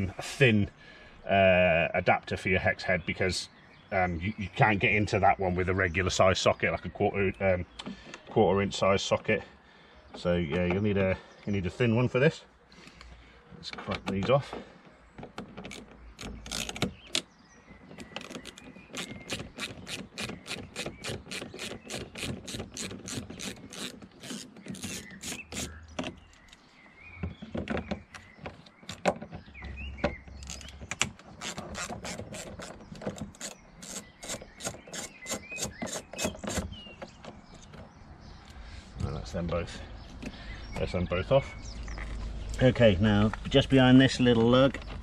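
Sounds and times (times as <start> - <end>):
hand ratchet clicking: 18.2 - 25.7.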